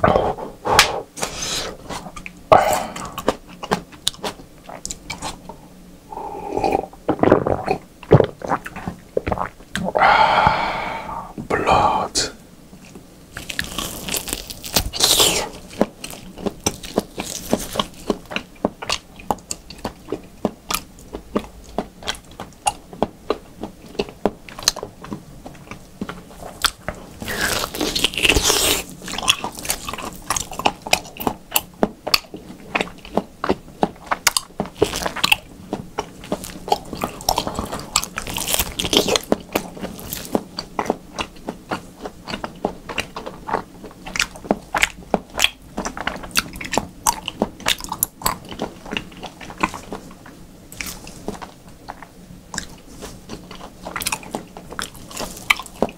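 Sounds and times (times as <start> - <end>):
wet chewing mouth clicks: 12.8 - 55.9
biting into meat: 13.4 - 22.8, 24.0 - 50.0.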